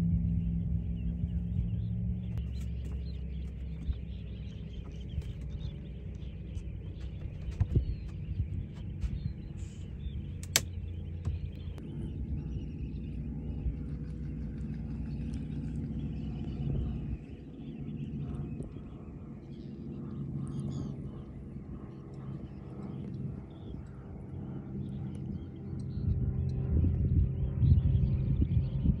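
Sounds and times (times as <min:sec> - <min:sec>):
boat motor rumble: 0:00.0 - 0:29.0
wind: 0:00.0 - 0:29.0
sharp clicks: 0:10.3 - 0:11.8.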